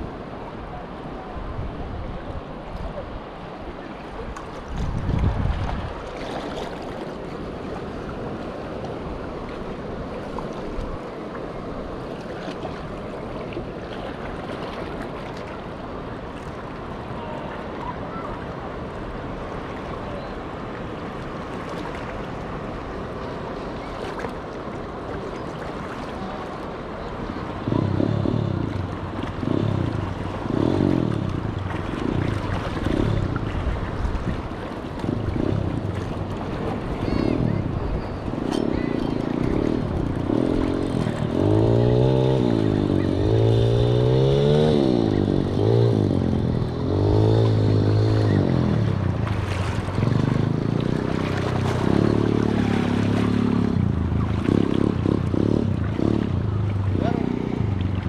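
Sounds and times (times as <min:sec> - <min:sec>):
wind on microphone: 0:00.0 - 0:11.2, 0:27.0 - 0:58.0
sea washing against rocks: 0:03.3 - 0:43.2, 0:46.6 - 0:57.0.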